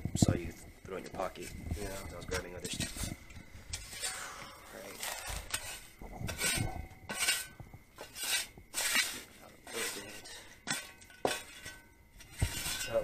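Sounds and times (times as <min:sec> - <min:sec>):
rustling and clattering: 0:00.0 - 0:13.0.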